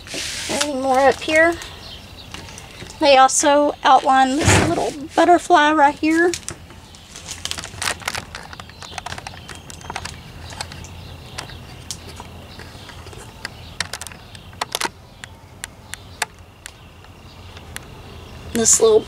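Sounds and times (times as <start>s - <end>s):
plastic film crinkling under fingers: 6.0s - 16.8s.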